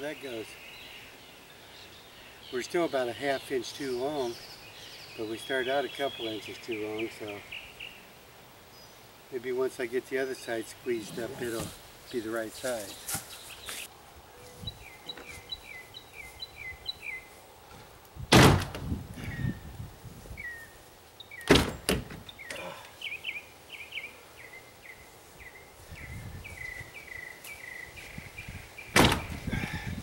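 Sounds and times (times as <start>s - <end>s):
bird chirping: 0.0s - 9.1s, 10.0s - 17.4s, 20.4s - 30.0s
heavy thunks on boat hull: 18.3s - 18.9s, 28.9s - 29.4s.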